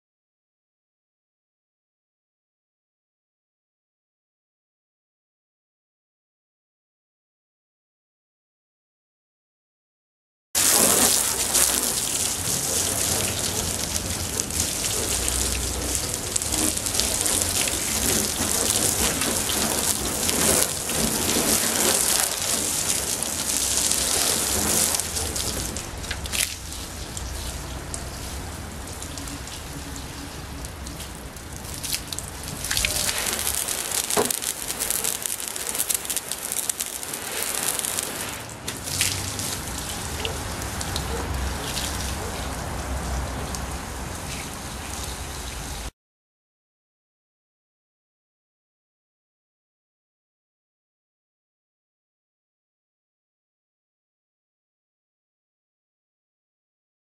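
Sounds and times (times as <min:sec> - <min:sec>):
hose water splashing on car: 0:10.6 - 0:45.9.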